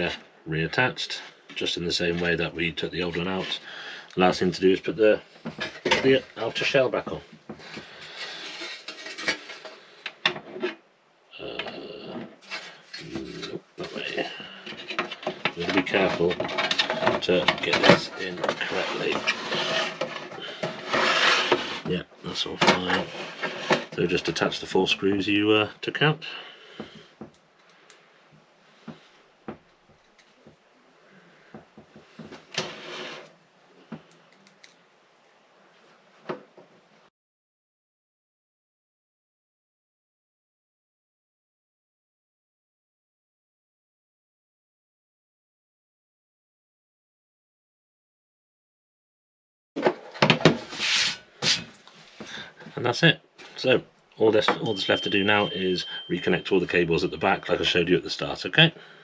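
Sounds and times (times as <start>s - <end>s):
sheet metal scraping and rubbing: 12.1s - 21.9s, 22.6s - 24.1s, 32.5s - 33.3s.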